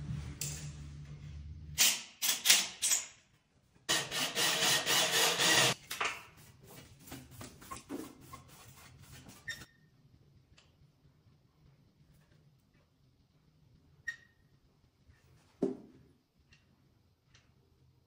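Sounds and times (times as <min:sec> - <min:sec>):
cordless drill running: 0:03.9 - 0:05.8.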